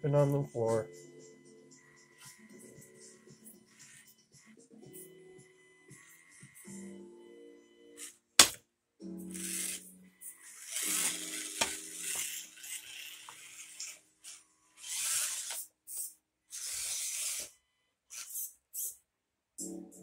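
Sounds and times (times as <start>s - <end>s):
small motor whirring: 9.3s - 19.0s.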